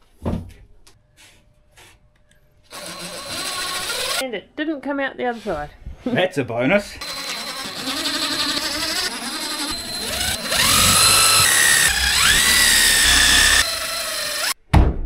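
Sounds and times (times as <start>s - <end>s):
power drill motor whine: 2.7s - 4.2s, 7.0s - 14.6s.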